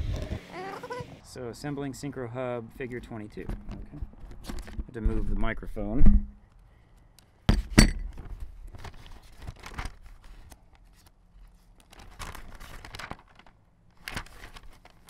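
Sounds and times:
microphone handling thumps: 3.4s - 6.4s
pages turning with light knocks: 8.2s - 15.0s
paper rustling: 8.2s - 15.0s.

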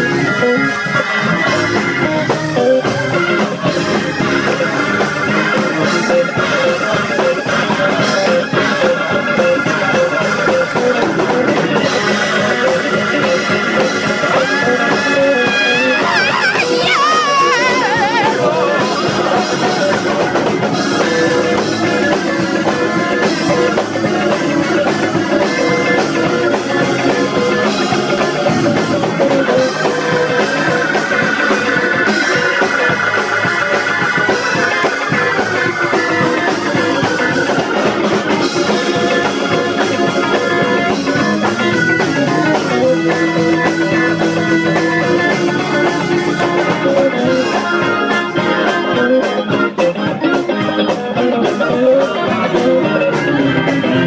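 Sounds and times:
hammond organ chords: 0.0s - 54.0s
live band with drums: 0.0s - 54.0s.

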